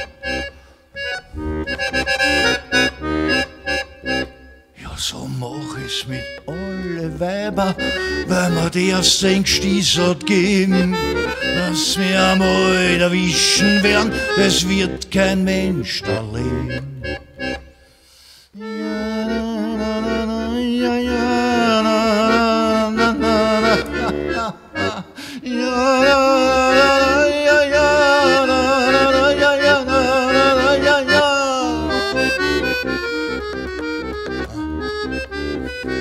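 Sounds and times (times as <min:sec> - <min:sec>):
solo accordion playing: 0:00.0 - 0:36.0.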